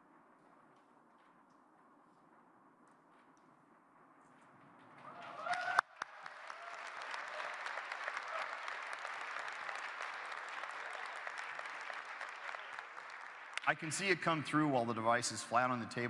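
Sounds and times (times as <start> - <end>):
audience applause: 5.0 - 14.4.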